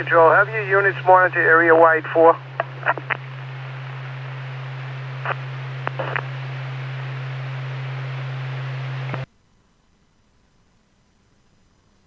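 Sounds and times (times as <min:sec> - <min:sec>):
radio crackles: 0:00.0 - 0:09.3
low hum: 0:00.0 - 0:12.0
radio static hiss: 0:00.0 - 0:12.0.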